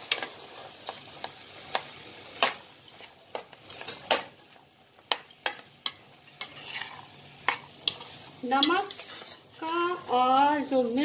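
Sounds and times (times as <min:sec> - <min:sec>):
faint sizzle: 0:00.0 - 0:11.0
spatula scraping a pan: 0:05.4 - 0:10.5.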